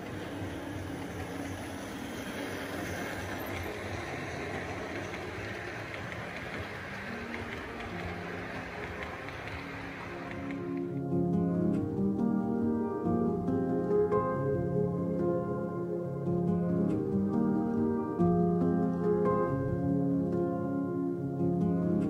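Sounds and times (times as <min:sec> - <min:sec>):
model train rolling on track: 0:00.0 - 0:11.0.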